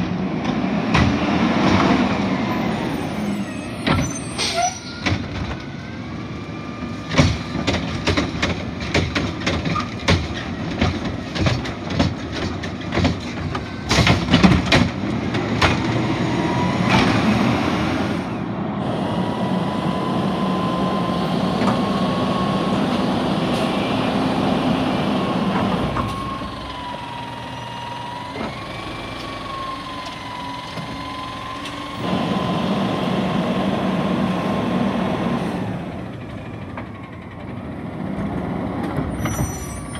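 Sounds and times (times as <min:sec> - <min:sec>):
hydraulics whining: 0:00.0 - 0:39.9
metal clanks and knocks: 0:07.1 - 0:16.0
truck engine revving: 0:13.5 - 0:39.4.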